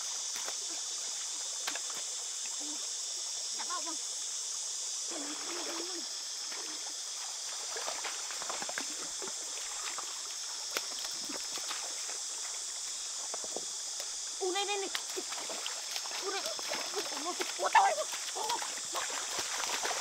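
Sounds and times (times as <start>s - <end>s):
high-pitched insect drone: 0.0s - 20.0s
trickling water: 5.1s - 20.0s
hands splashing in stream: 5.2s - 12.7s, 14.9s - 20.0s.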